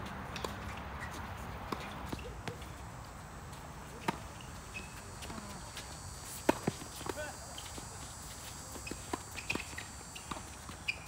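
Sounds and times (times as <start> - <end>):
tennis ball bouncing on hard court: 0.3 - 2.8, 3.6 - 5.6, 6.3 - 7.9, 8.7 - 11.0
tennis ball hit by racquets: 0.3 - 2.8, 3.6 - 11.0.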